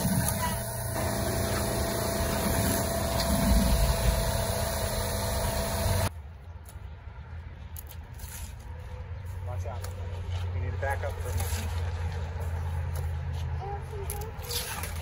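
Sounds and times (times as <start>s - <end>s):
engine humming: 0.0s - 6.2s.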